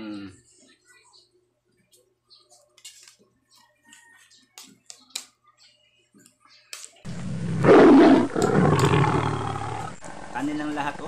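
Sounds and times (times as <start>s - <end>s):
eating noises: 7.1s - 10.9s.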